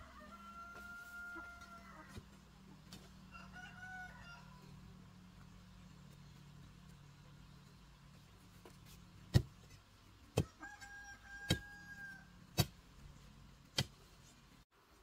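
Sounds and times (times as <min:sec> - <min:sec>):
hoe striking stony soil: 0:08.6 - 0:10.6, 0:11.4 - 0:11.8, 0:12.5 - 0:12.8, 0:13.7 - 0:14.0.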